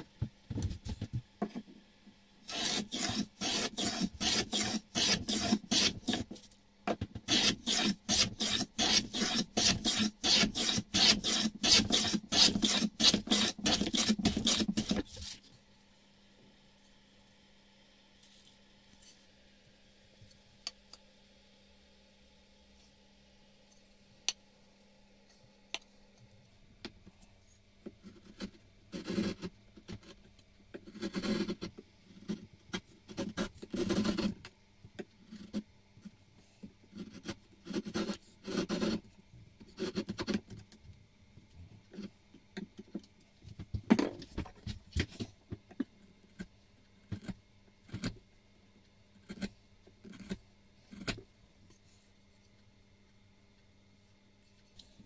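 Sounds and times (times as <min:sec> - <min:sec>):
chisel scraping wood: 0:02.5 - 0:06.4, 0:07.3 - 0:15.4.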